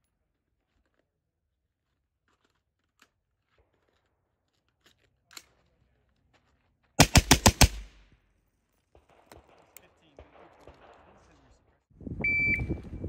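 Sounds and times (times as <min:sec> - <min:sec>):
faint clicks and rustles of gear: 0:00.1 - 0:07.0
rifle shots: 0:07.0 - 0:08.0, 0:09.0 - 0:11.5.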